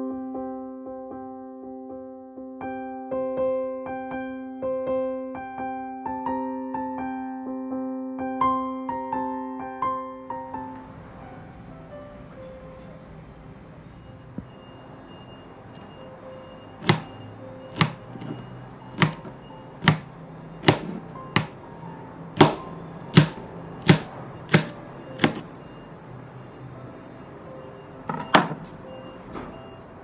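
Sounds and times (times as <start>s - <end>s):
knife chopping on cutting board: 16.8s - 21.6s, 22.4s - 25.4s.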